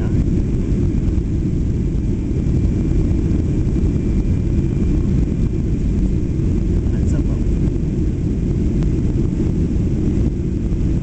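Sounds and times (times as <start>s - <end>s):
airplane cabin rumble: 0.0s - 11.0s
faint steady whine: 0.0s - 11.0s.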